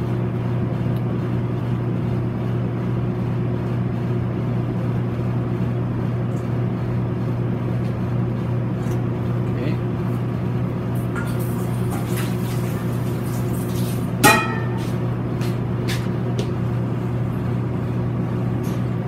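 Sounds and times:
kitchen equipment humming: 4.2 - 19.0.

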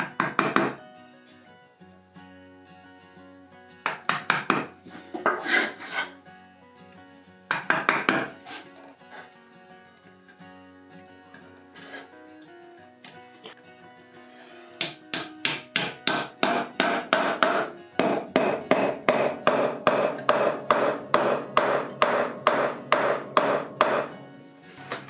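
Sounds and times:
wooden mallet striking a board: 0.0 - 0.8, 3.9 - 5.4, 7.5 - 8.3, 14.8 - 24.1.

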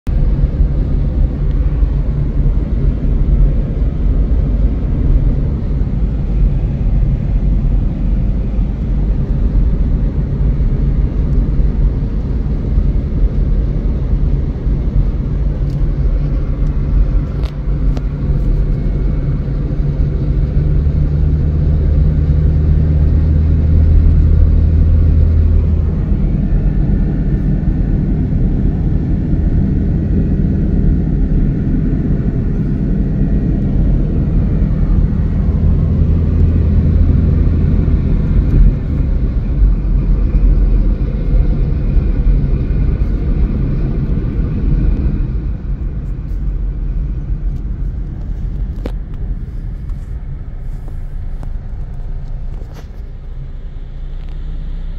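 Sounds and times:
deep engine hum: 0.0 - 54.9
road noise inside a car: 0.0 - 54.9.

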